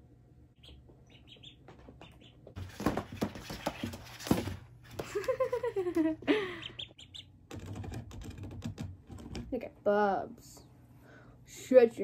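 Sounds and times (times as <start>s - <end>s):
ducklings peeping: 0.5s - 4.4s, 6.3s - 7.5s
duckling scrambling and rustling: 0.6s - 6.1s.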